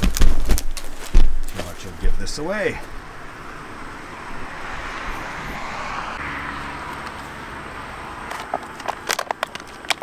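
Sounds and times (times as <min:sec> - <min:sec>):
crinkles and clicks of handling: 0:00.0 - 0:01.8, 0:08.2 - 0:10.0
highway traffic rushing: 0:00.1 - 0:10.0.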